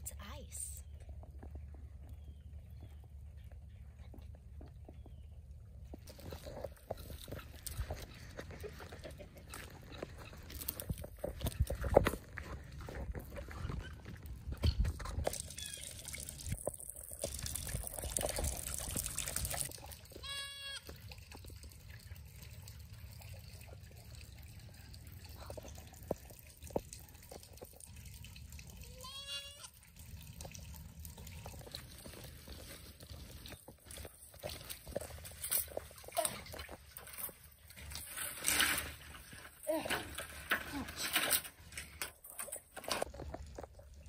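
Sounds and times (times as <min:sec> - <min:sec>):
goat or sheep bleating: 0:20.2 - 0:20.9, 0:28.9 - 0:29.7.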